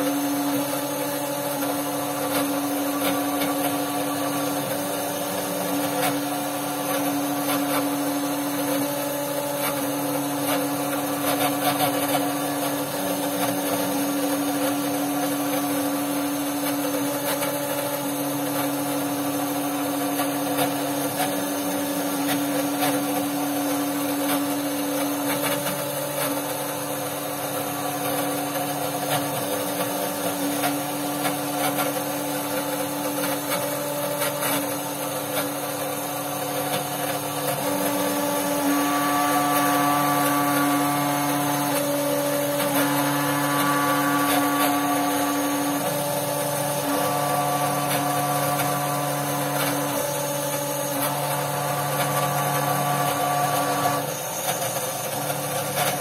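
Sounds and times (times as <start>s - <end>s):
mill spindle hum: 0.0s - 54.2s
high whining tones: 37.7s - 49.8s.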